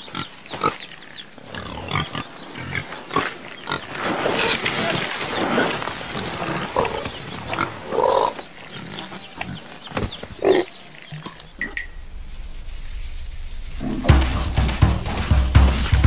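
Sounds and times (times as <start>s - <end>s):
pigs grunting: 1.4s - 11.8s
low rumble: 11.4s - 16.0s.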